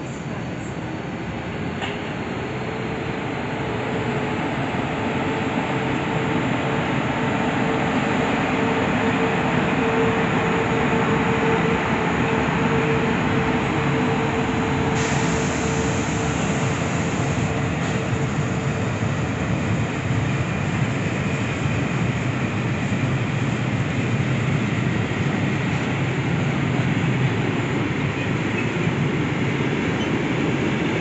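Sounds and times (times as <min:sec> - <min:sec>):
train wheels on rails: 0:00.0 - 0:31.0.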